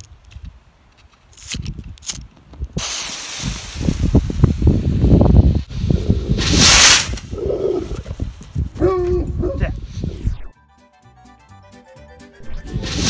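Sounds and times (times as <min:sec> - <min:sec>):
wind buffeting microphone: 0:01.5 - 0:10.4
rocket motor hissing: 0:02.8 - 0:07.5, 0:12.7 - 0:13.0.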